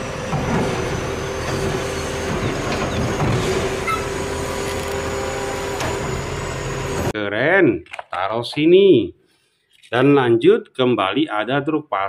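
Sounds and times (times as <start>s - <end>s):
garbage truck engine and hydraulics: 0.0s - 7.2s.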